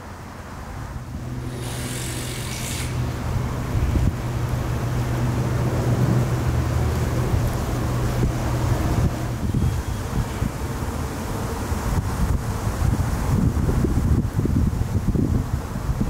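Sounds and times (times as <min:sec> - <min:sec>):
engine running: 0:00.0 - 0:12.9
brief hiss: 0:01.5 - 0:03.1.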